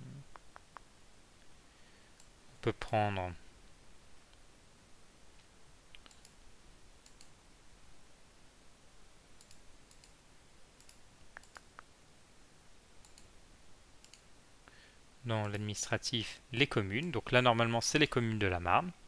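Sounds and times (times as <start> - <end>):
faint computer mouse clicks: 5.4 - 6.4, 7.0 - 7.4, 9.4 - 10.2, 10.8 - 11.9, 13.0 - 13.3, 14.0 - 14.3.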